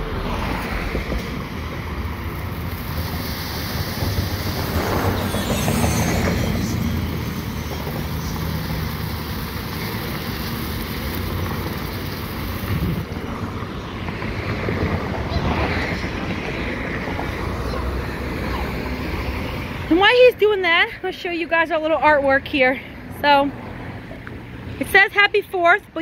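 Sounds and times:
low rumble: 0.0 - 10.2
fountain firework hissing: 2.0 - 14.5.

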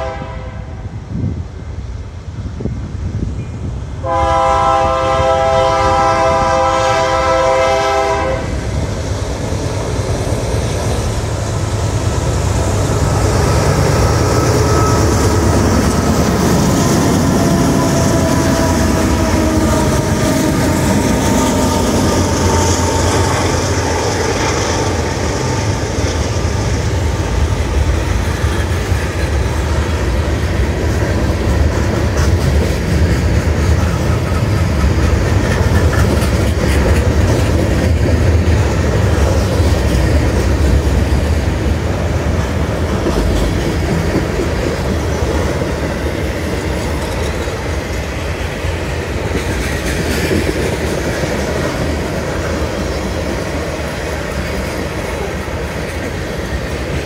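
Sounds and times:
locomotive horn blast: 0.0 - 0.9, 4.0 - 8.6, 14.5 - 24.0
freight cars rolling on rails: 1.6 - 57.0
locomotive engine rumble: 3.7 - 57.0.

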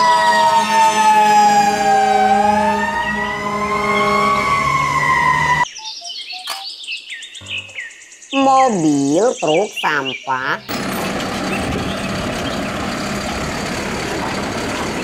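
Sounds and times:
fire engine siren wailing: 0.0 - 5.7.

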